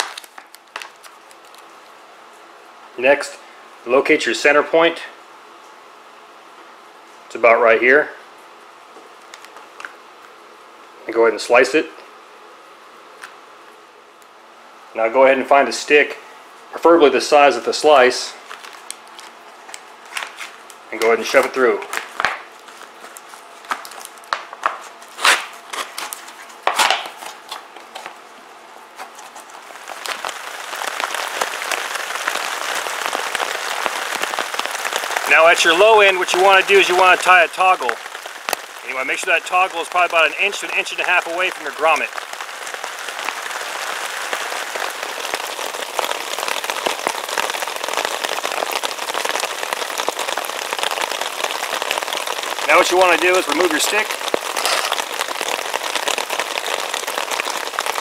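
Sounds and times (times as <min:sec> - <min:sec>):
plastic bag crinkling: 0:00.0 - 0:01.9, 0:18.4 - 0:28.2, 0:35.2 - 0:48.8, 0:51.2 - 0:58.0
rain pattering on a tarp: 0:00.0 - 0:03.4, 0:09.0 - 0:10.4, 0:17.0 - 0:58.0.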